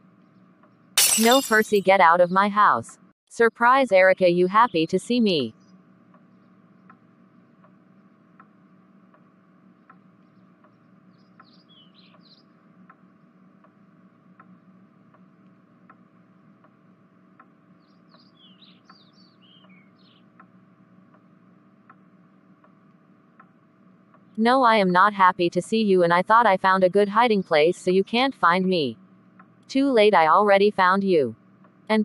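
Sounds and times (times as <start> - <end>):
low steady hum: 1.0 - 11.2, 18.8 - 32.0.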